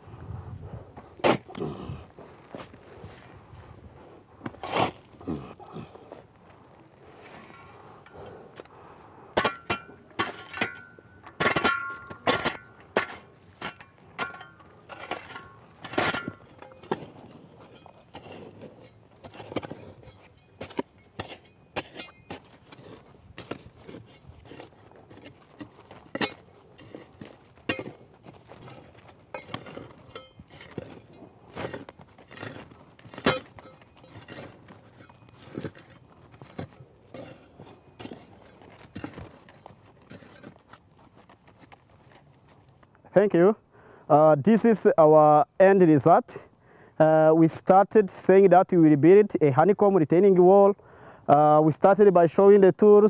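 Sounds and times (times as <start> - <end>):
shovel working soil: 1.2 - 2.0, 4.4 - 5.4, 9.3 - 42.3
ringing metallic clinks: 29.3 - 31.2, 33.3 - 38.2.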